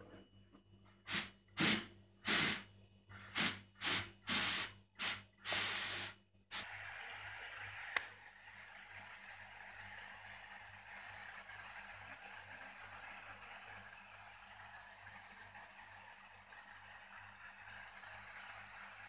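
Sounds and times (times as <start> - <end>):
faint steady air hiss: 0.0 - 19.0
spray gun hissing blasts: 1.1 - 8.0.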